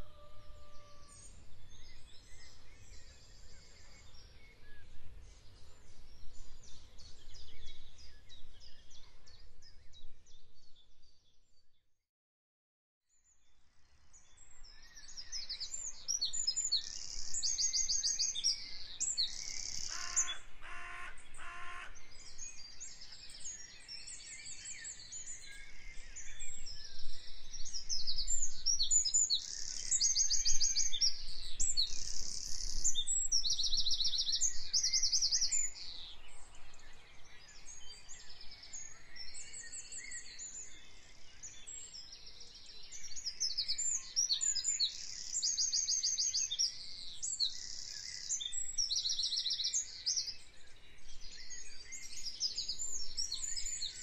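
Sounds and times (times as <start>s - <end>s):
songbirds chirping and trilling: 0.0s - 11.7s, 13.1s - 54.0s
lower bird call: 19.6s - 22.1s.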